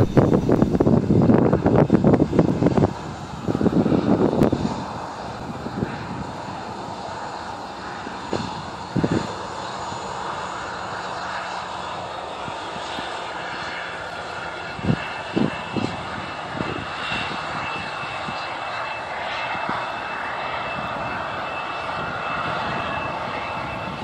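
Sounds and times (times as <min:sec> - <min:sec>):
low thumps: 0:00.0 - 0:01.2
faint high whine: 0:00.0 - 0:01.4
jet engines running: 0:00.0 - 0:24.0.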